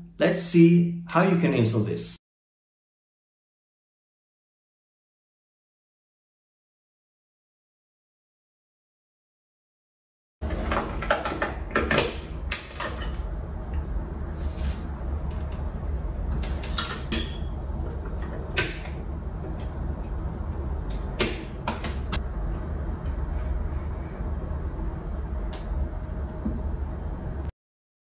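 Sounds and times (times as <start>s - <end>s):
steady low hum: 10.4s - 27.5s.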